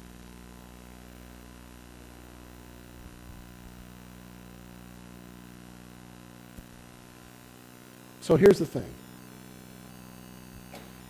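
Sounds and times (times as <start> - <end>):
sound system hum and hiss: 0.0 - 11.0.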